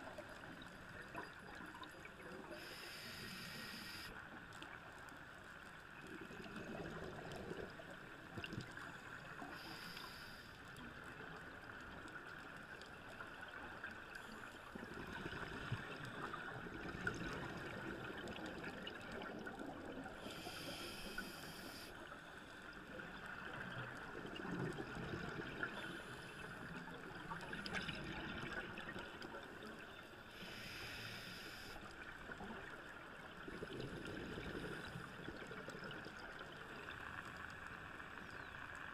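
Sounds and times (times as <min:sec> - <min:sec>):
regulator inhalation hiss: 0:02.5 - 0:04.1, 0:09.6 - 0:10.6, 0:20.2 - 0:21.9, 0:30.4 - 0:31.8
gurgling exhaled bubbles: 0:14.8 - 0:20.2, 0:23.9 - 0:29.3, 0:33.3 - 0:36.6.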